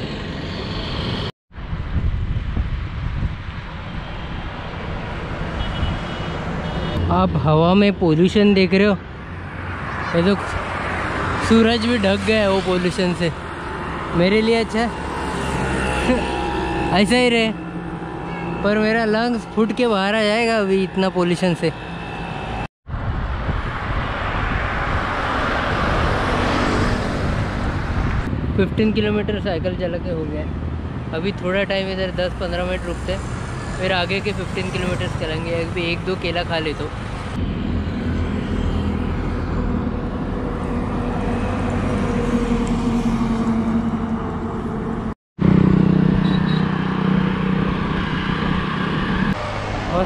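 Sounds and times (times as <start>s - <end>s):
vehicle passing on highway: 0.0s - 7.5s, 9.0s - 29.2s, 30.5s - 50.0s
low traffic rumble: 0.0s - 50.0s
truck and motorbike engines: 0.0s - 50.0s.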